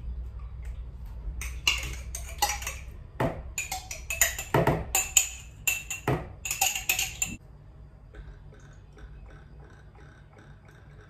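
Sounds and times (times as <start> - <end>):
whisk clinking against bowl: 1.4 - 2.9, 3.6 - 7.4.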